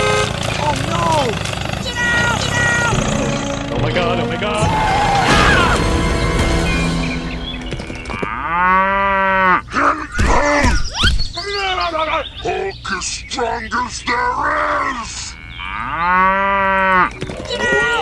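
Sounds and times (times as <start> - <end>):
cow mooing: 8.2 - 9.7, 15.3 - 17.2.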